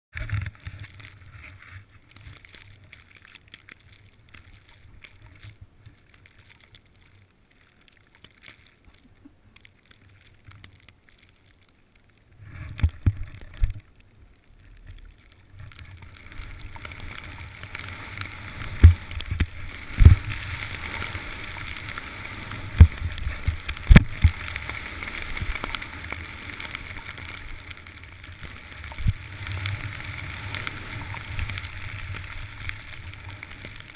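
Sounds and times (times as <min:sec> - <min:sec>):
snowboard hissing on snow: 0:16.8 - 0:33.8.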